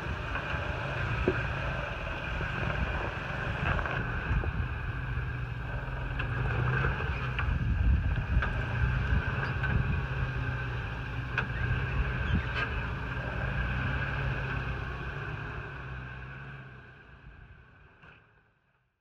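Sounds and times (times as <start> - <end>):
pickup engine running: 0.0 - 16.4.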